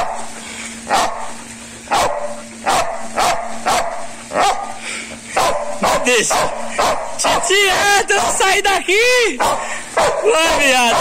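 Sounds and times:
dog barking: 0.0 - 0.3, 0.9 - 4.8, 5.4 - 8.5, 9.4 - 11.0.

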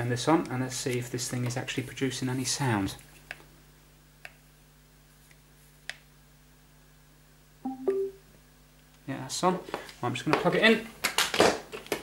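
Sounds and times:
faint steady hum: 0.0 - 11.1
speaker power-on chime: 7.6 - 8.2.

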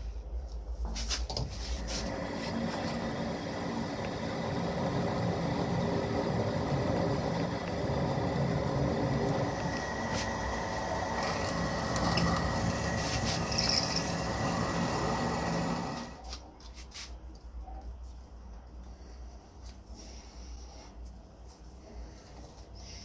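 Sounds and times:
metal lathe whining: 1.8 - 16.2
drill bit boring into metal: 2.2 - 16.2.

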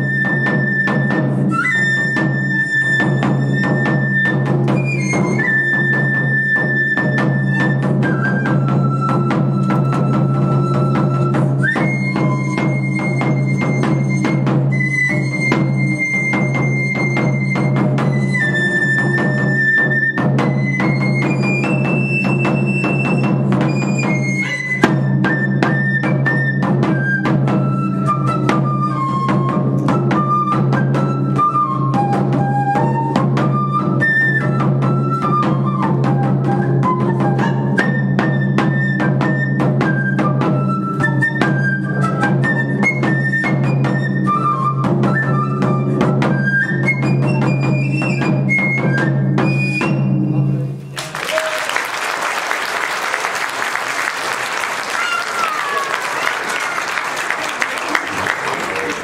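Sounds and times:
side-blown flute melody: 0.0 - 51.6
audience applause: 51.0 - 59.0.

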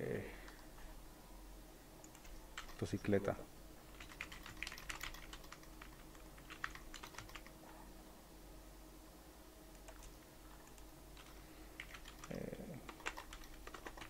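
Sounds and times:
low steady hum: 0.0 - 14.0
faint computer keyboard keystrokes: 2.0 - 3.0, 3.9 - 7.5, 9.7 - 14.0.

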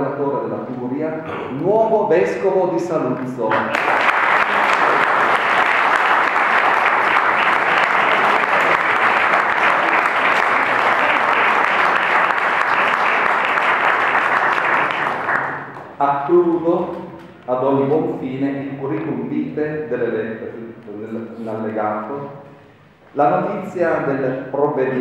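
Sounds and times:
audience applauding: 3.5 - 16.0.

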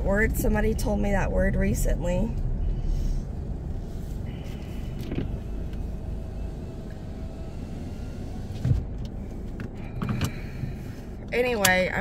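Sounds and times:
car cabin rumble: 0.0 - 12.0.

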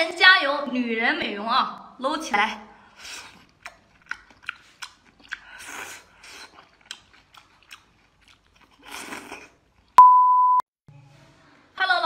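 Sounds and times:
crunchy chewing and biting: 3.1 - 10.0.

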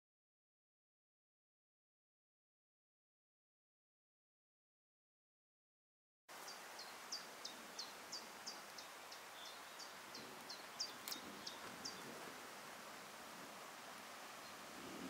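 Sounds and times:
faint outdoor hiss: 6.3 - 15.0
songbird singing high notes: 6.4 - 12.1.

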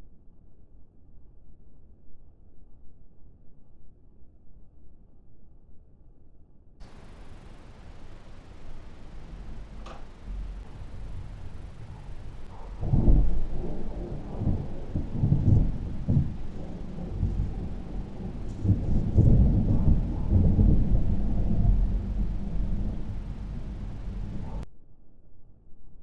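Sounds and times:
thunder rolling and rumbling: 6.8 - 24.6.

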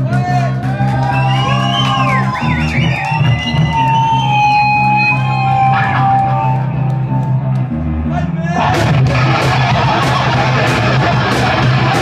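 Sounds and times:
electric guitars sustained bending notes: 2.0 - 12.0
steady bass note: 4.7 - 12.0.

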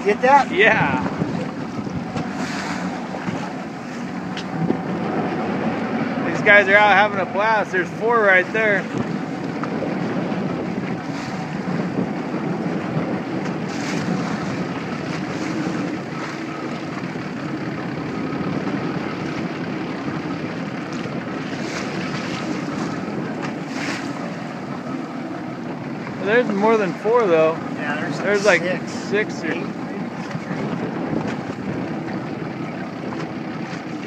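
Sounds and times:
wind noise on microphone: 0.0 - 7.3, 8.7 - 25.0, 29.4 - 34.0
water lapping against boat hull: 0.0 - 34.0.

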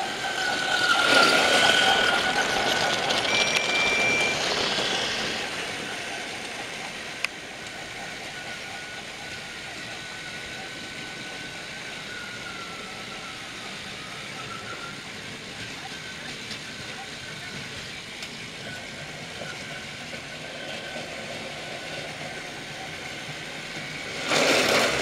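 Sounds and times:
toy train motor whine: 0.0 - 25.0
toy train wheel rattle: 0.3 - 5.4, 24.1 - 25.0.

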